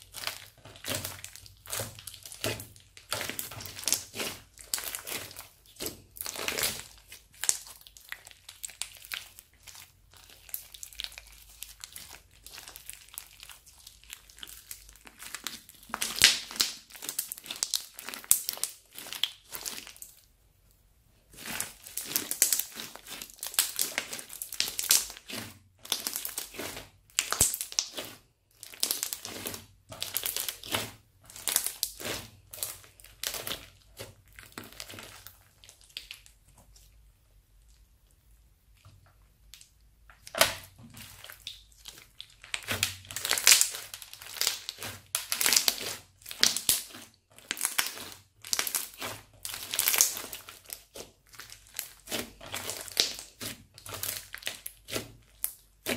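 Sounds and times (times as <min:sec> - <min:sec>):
crunchy slime crackling: 0:00.0 - 0:20.3, 0:21.2 - 0:36.9, 0:38.7 - 0:55.9.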